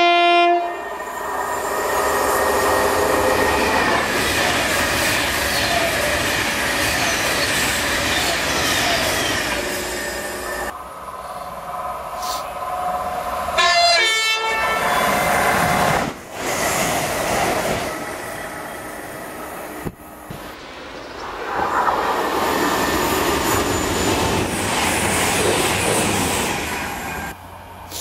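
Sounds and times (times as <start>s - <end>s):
train horn: 0.0s - 0.9s, 13.6s - 15.2s
train wheels rumbling on rails: 1.0s - 13.6s, 14.8s - 28.0s.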